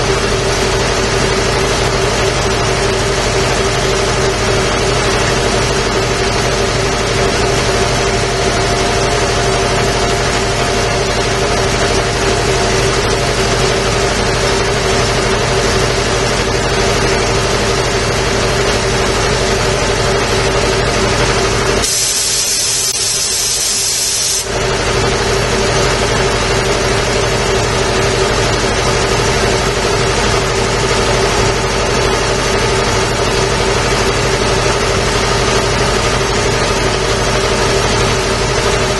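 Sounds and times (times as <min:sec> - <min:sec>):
air compressor running: 0:00.0 - 0:38.9
sharp high-pitched air hiss: 0:21.8 - 0:24.5.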